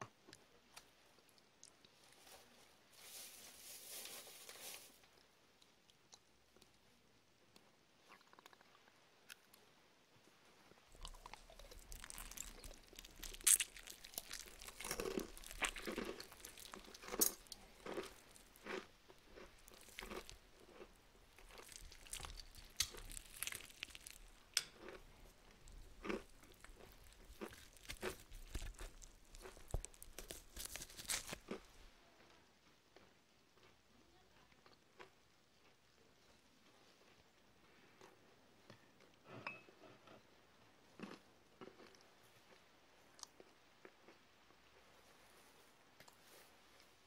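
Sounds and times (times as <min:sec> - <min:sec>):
crunching and chewing chips: 0:07.6 - 0:09.6, 0:10.9 - 0:38.2, 0:40.9 - 0:44.9.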